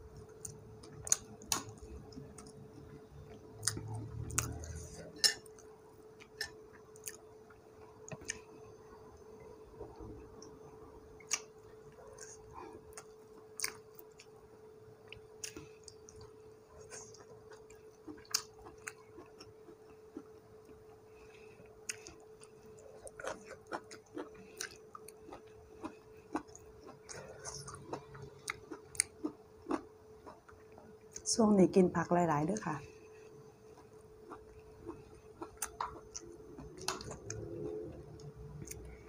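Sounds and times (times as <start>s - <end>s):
faint steady hum: 0.0s - 39.0s
person chewing: 0.3s - 2.6s, 3.6s - 8.5s, 11.2s - 14.3s, 15.0s - 20.9s, 21.8s - 31.2s, 33.7s - 39.0s.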